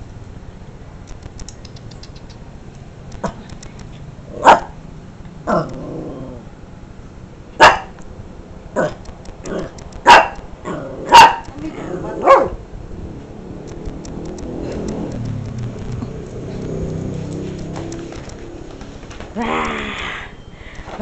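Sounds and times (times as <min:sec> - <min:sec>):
small dog barking: 0:04.4 - 0:04.8, 0:07.6 - 0:08.0, 0:10.0 - 0:12.6
dog growling: 0:05.5 - 0:06.5, 0:10.6 - 0:11.1.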